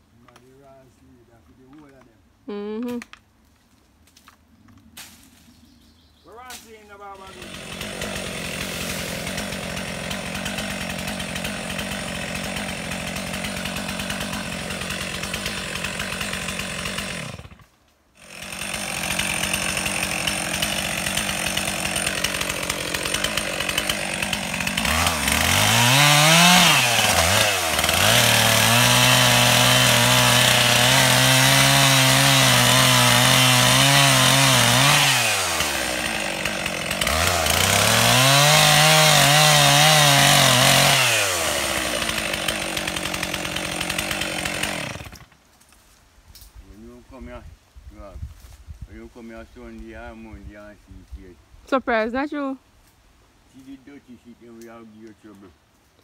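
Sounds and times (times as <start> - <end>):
chainsaw sawing through tree: 6.6 - 46.0
chainsaw idling and revving: 6.9 - 45.4.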